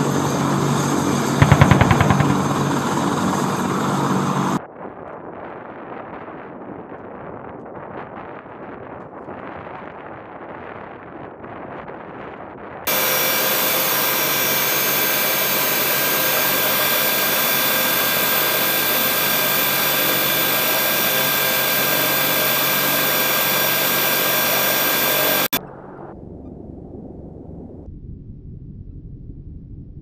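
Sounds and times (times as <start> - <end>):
helicopter turbine whine: 0.0 - 4.6, 12.9 - 25.6
faint wind: 0.0 - 27.9.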